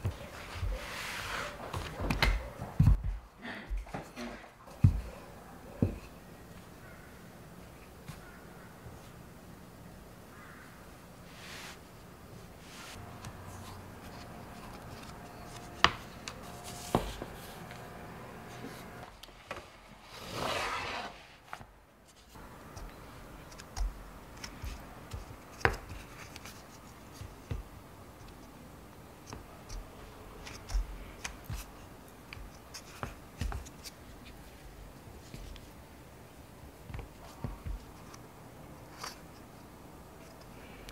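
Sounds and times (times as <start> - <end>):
rolling pin on dough: 0.0 - 3.2, 12.6 - 19.0
short rushing rub: 20.0 - 21.6.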